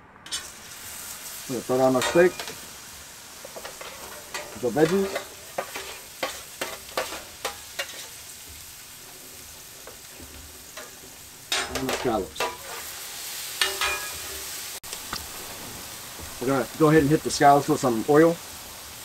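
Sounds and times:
metal spatula scraping steel: 0.2s - 0.6s, 1.7s - 2.8s, 3.4s - 14.7s
steak sizzling on a griddle: 0.2s - 19.0s
metal clatter with ringing: 13.6s - 14.4s.

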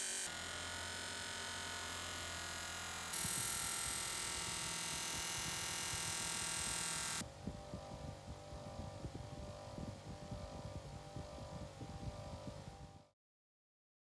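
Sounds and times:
bench grinder humming: 0.0s - 7.2s
grinder polishing blade whir: 0.0s - 7.2s.

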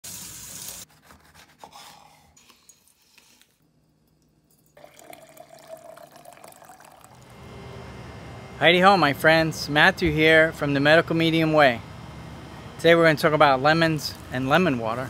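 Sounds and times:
water dripping: 4.1s - 7.2s
water poured into glass jar: 4.5s - 7.3s.

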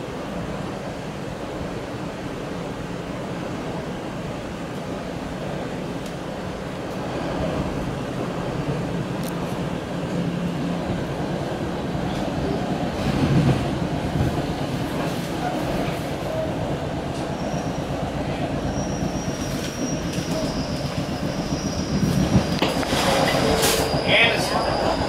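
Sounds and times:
train wheels rumbling on rail: 0.0s - 25.0s
thin high squeal: 23.0s - 25.0s.

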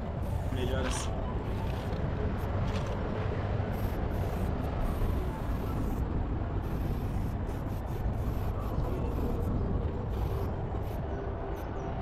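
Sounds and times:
spray paint can hissing: 3.7s - 6.0s, 6.6s - 11.0s.

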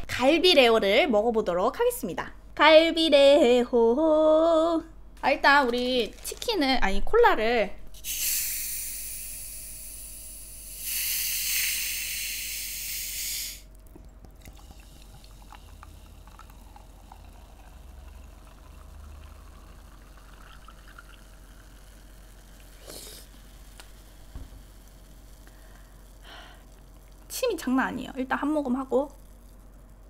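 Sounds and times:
carbonation hissing from bottle: 8.0s - 30.0s
cola poured fizzing softly: 10.7s - 30.0s.

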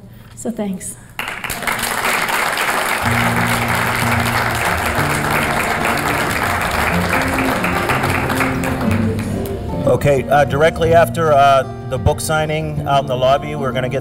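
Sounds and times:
audience applauding: 1.2s - 9.8s
background music with low notes: 3.1s - 14.0s.

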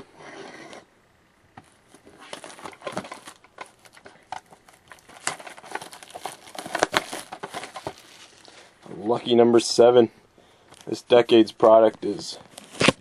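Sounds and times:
cardboard rustling: 1.6s - 8.7s
plastic shrink-wrap crinkling: 1.9s - 8.8s.

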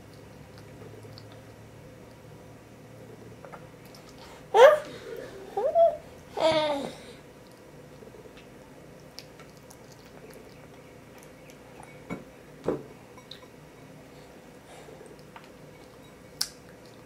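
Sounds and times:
baby calling: 4.5s - 5.0s.

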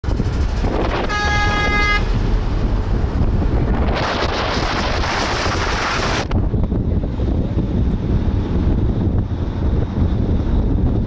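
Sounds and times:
car road rumble: 0.0s - 11.0s
wind buffeting microphone: 0.0s - 11.0s
vehicle horn honk: 0.9s - 2.2s.

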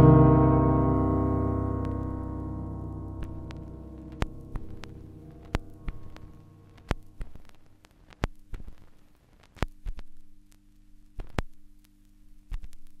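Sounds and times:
low steady hum: 0.0s - 13.0s
heartbeat-like sharp clicks: 3.2s - 10.2s.

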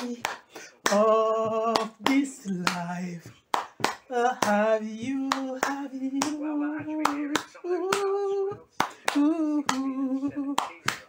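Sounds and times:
hand claps: 0.0s - 11.0s
person singing long notes: 4.1s - 10.7s.

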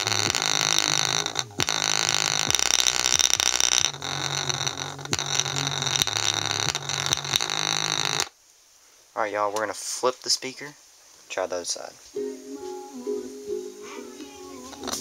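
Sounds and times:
speaker playing bass notes: 0.0s - 8.2s
harsh buzzing of vibrating ball: 0.0s - 8.4s, 14.6s - 15.0s.

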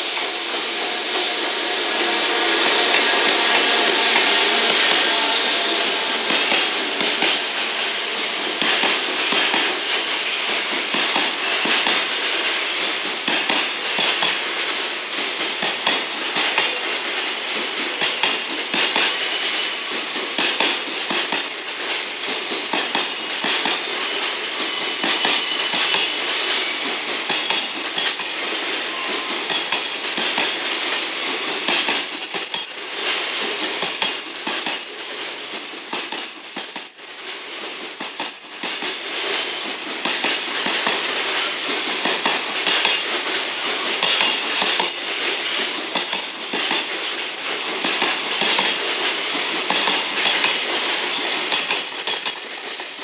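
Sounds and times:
train wheels rumbling on rail: 0.0s - 53.0s
high wheel squeal: 0.3s - 6.5s, 23.4s - 27.0s, 28.1s - 41.8s.

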